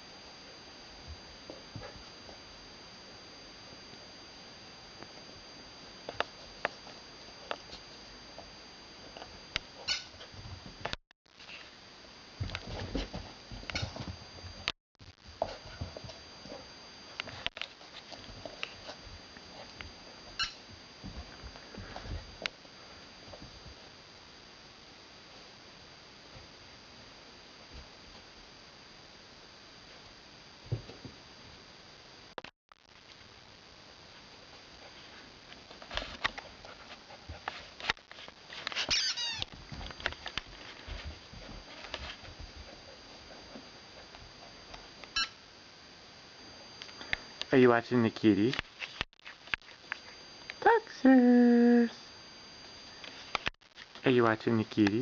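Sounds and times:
puppy squeak: 38.9s - 39.4s.

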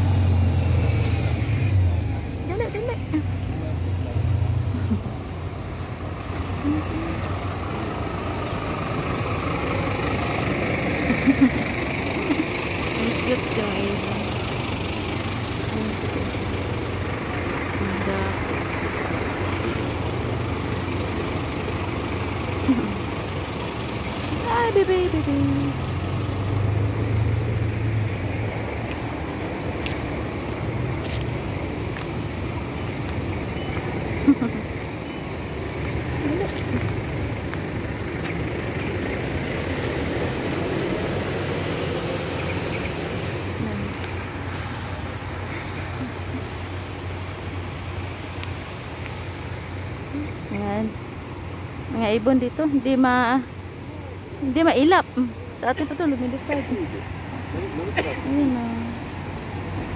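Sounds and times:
road traffic passing: 0.0s - 59.9s
vehicle engine hum: 0.0s - 59.9s
faint sharp ticks: 48.3s - 49.2s.

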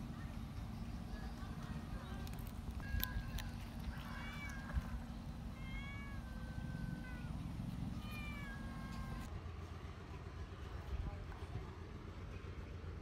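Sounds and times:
cat meowing: 4.1s - 4.9s, 5.6s - 7.4s, 8.0s - 9.3s.

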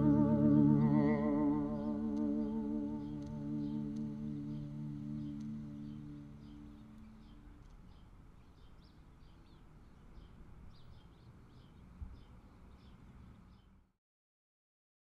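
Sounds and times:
low ringing tone: 0.0s - 7.6s
faint birds chirping: 0.0s - 13.9s.

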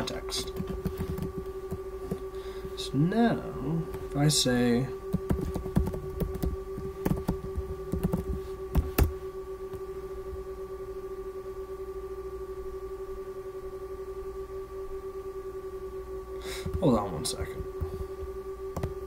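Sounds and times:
electrical hum with rapid pulsing: 0.0s - 19.0s.

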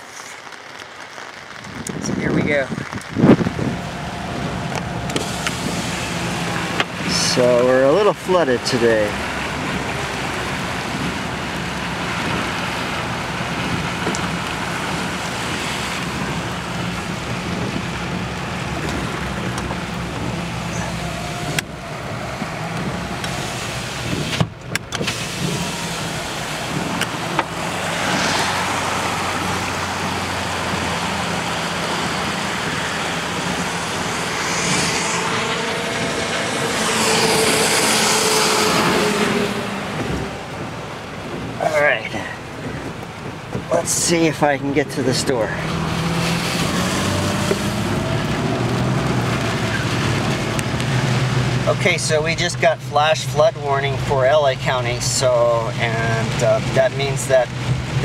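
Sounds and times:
tyre hiss on wet road: 0.0s - 24.4s, 25.0s - 39.8s
truck engine hum: 0.0s - 58.0s.

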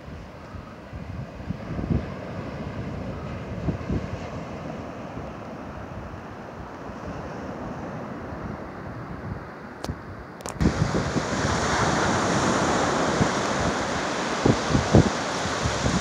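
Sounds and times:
wind buffeting microphone: 0.0s - 16.0s
waves breaking on beach: 10.6s - 16.0s.

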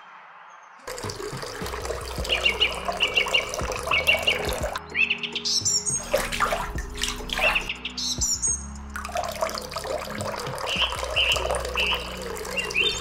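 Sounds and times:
quiet background music: 0.0s - 13.0s
birds chirping: 0.5s - 13.0s
water pouring from metal pot: 0.9s - 4.8s, 5.9s - 7.7s, 8.4s - 13.0s.

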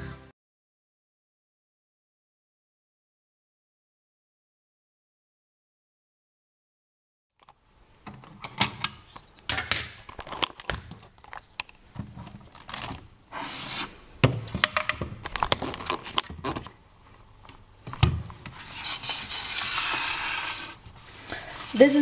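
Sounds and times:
plastic scraping and rubbing: 10.0s - 13.9s, 14.6s - 16.8s.

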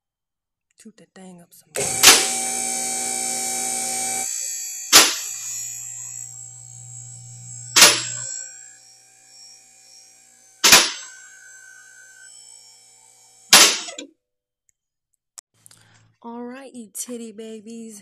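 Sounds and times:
electric pump motor humming: 1.8s - 14.0s
low hum: 1.8s - 14.0s.

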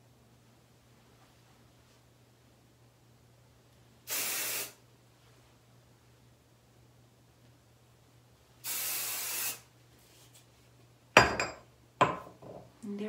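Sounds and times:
hairspray hissing from can: 4.1s - 4.8s, 8.6s - 9.7s.

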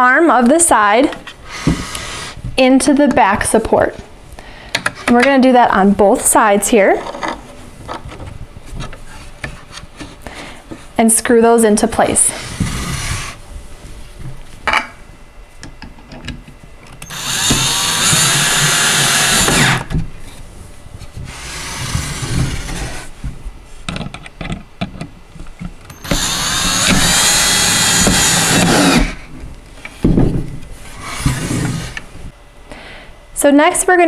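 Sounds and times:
cordless drill driving screws: 17.0s - 19.9s, 25.9s - 29.2s.

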